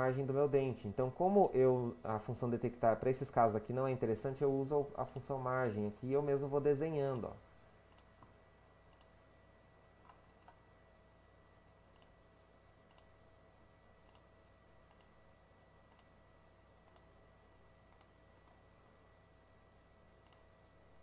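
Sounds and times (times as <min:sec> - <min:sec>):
faint room hum: 0:00.0 - 0:21.0
computer mouse clicks: 0:07.9 - 0:08.3, 0:08.9 - 0:09.2, 0:10.0 - 0:10.6, 0:11.9 - 0:12.2, 0:12.8 - 0:13.2, 0:14.0 - 0:15.2, 0:15.9 - 0:16.2, 0:16.8 - 0:17.1, 0:17.9 - 0:18.6, 0:20.2 - 0:20.5.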